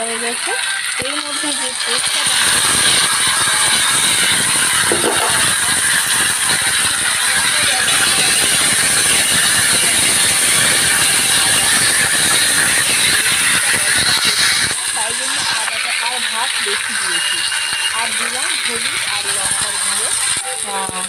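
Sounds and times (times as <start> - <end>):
onions sizzling in hot oil: 0.0 - 21.0
spatula scraping pan: 1.5 - 9.5, 11.9 - 21.0.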